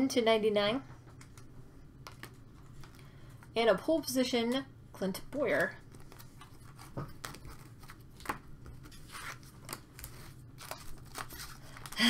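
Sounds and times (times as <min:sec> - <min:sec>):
cards and wrapper clicking and rustling: 0:05.5 - 0:12.0.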